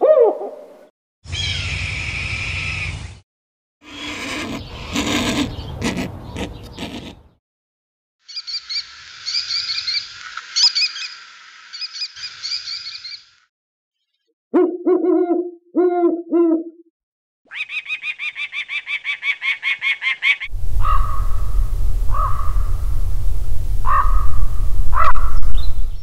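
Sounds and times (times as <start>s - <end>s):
falcon harsh cacking calls: 3.8s - 7.2s
owl deep hoots: 3.8s - 7.3s, 20.2s - 21.5s, 22.1s - 22.7s, 23.8s - 25.4s
kestrel shrill chattering calls: 8.3s - 13.3s.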